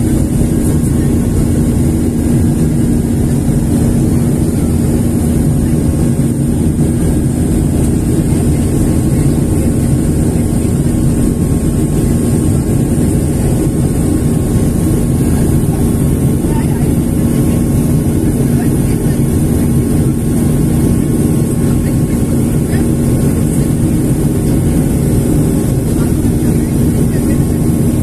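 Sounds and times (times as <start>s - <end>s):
jet engines roaring in cabin: 0.0s - 28.0s
low steady hum: 0.0s - 28.0s.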